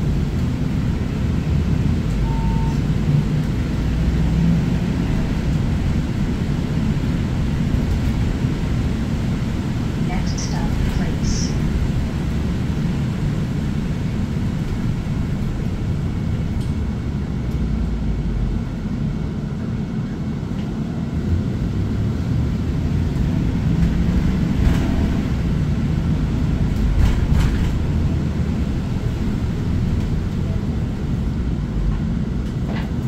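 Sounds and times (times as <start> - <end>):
engine and road rumble: 0.0 - 33.0.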